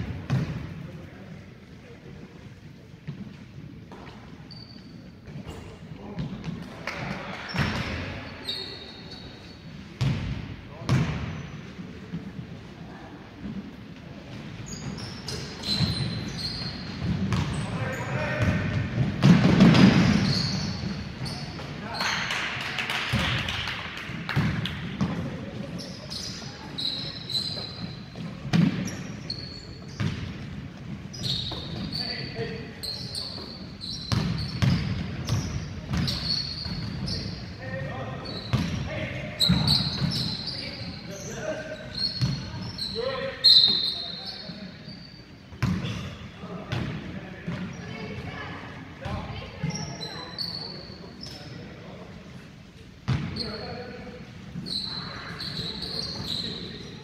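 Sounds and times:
basketball bouncing on wood floor: 0:00.3 - 0:00.6, 0:17.0 - 0:17.5, 0:18.4 - 0:20.2
shoe squeaks: 0:04.4 - 0:05.8, 0:07.5 - 0:09.8, 0:14.6 - 0:18.5, 0:19.9 - 0:22.2, 0:25.8 - 0:30.2, 0:31.1 - 0:46.4, 0:49.4 - 0:51.6, 0:53.3 - 0:54.0, 0:54.6 - 0:57.0
players' voices: 0:05.2 - 0:57.0.

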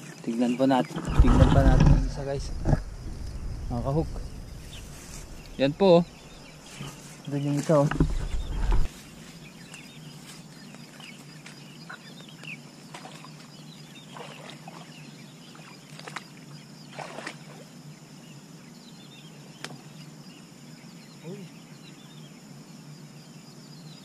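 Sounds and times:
small birds chirping: 0:00.2 - 0:24.0
steady low hum: 0:01.1 - 0:09.7
rustling through tall grass: 0:01.1 - 0:11.7.

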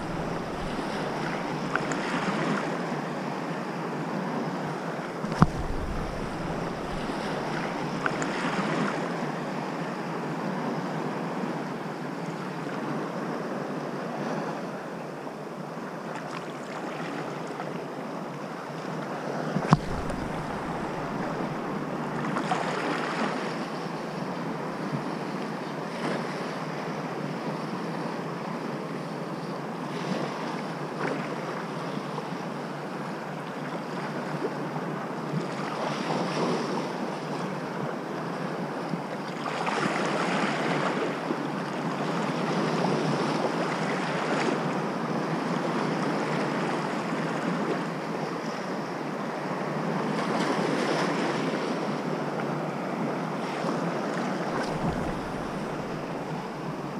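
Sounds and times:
sharp knocks with rumble: 0:00.0 - 0:01.8, 0:05.3 - 0:08.2, 0:19.7 - 0:22.2, 0:54.6 - 0:56.7
wind on microphone: 0:00.0 - 0:02.7, 0:05.2 - 0:09.2, 0:19.6 - 0:23.6, 0:53.6 - 0:56.9
sea waves washing: 0:00.0 - 0:03.4, 0:05.0 - 0:09.2, 0:19.2 - 0:23.9, 0:52.9 - 0:56.9.

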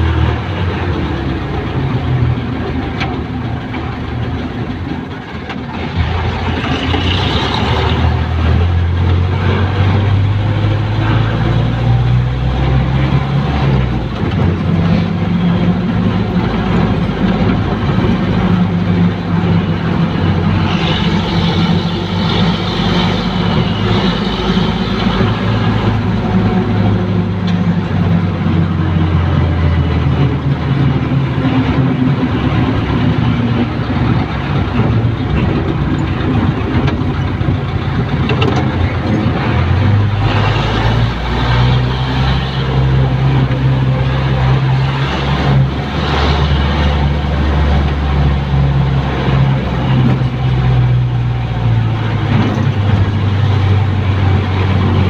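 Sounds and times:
road and cabin noise: 0:00.0 - 0:55.0
vehicle engine running: 0:00.0 - 0:55.0
high-pitched whine: 0:19.1 - 0:28.0.

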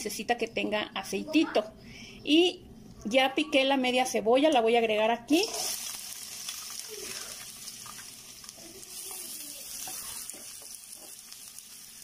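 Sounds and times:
onion sizzling in oil: 0:05.3 - 0:12.0.

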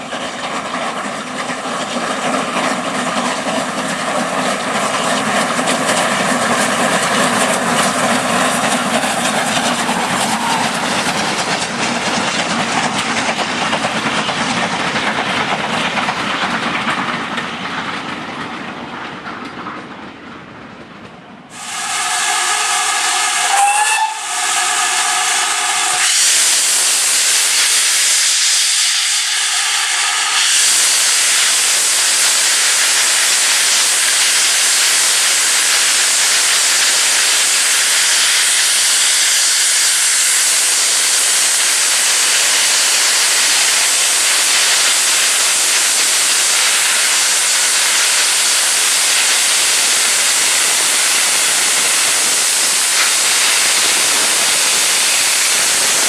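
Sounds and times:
steam hissing from cylinders: 0:01.1 - 0:16.0, 0:21.5 - 0:56.0
steam locomotive whistle: 0:08.9 - 0:10.9, 0:21.5 - 0:33.0.

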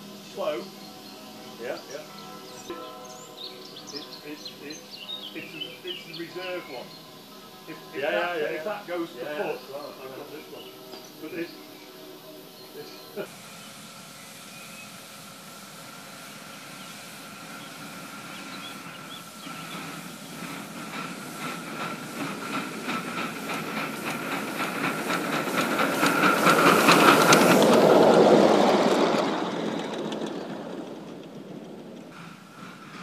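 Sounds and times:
steam locomotive exhaust chuffs: 0:00.0 - 0:33.0
wheels clattering on rails: 0:15.2 - 0:33.0.

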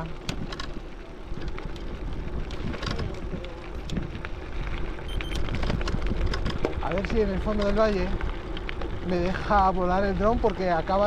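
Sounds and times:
bike tyre and frame noise: 0:00.0 - 0:11.0
clicks and rattles: 0:01.4 - 0:04.0
wind on microphone: 0:01.4 - 0:08.2.

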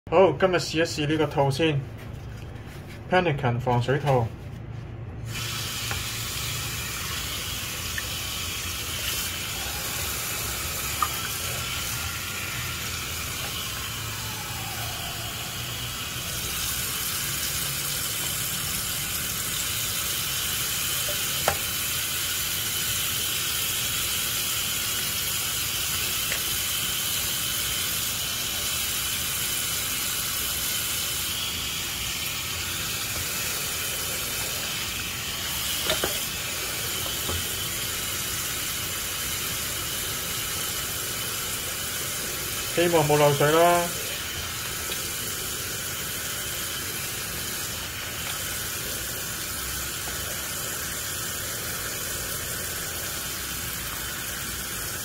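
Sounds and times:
tap water splashing: 0:05.8 - 0:06.1, 0:07.8 - 0:08.2, 0:10.8 - 0:11.9, 0:21.0 - 0:21.8, 0:35.6 - 0:36.3, 0:36.9 - 0:37.6, 0:44.6 - 0:45.1.

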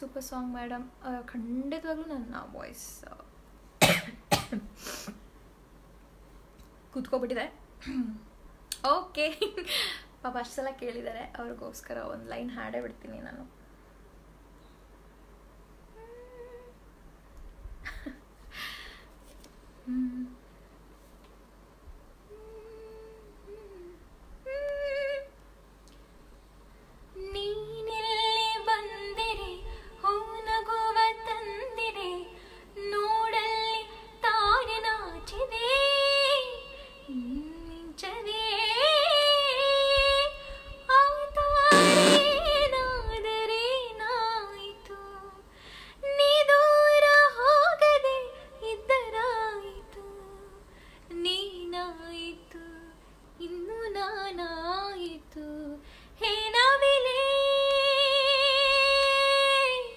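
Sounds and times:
brief hiss: 0:04.7 - 0:05.2
woman singing into a microphone: 0:27.2 - 0:59.9.

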